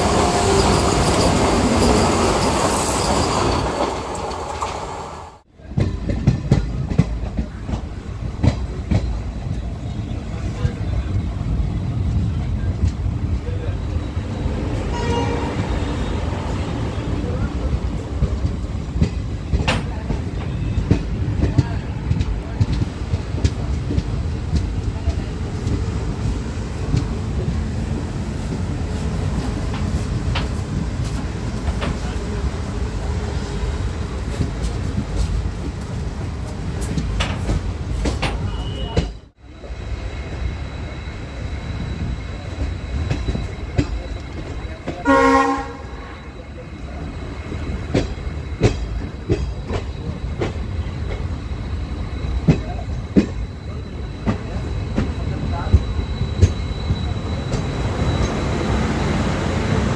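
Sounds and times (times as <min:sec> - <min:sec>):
train rumbling on track: 0:00.0 - 0:59.9
train wheels clicking: 0:05.7 - 0:09.8, 0:15.6 - 0:39.2, 0:46.8 - 0:59.9.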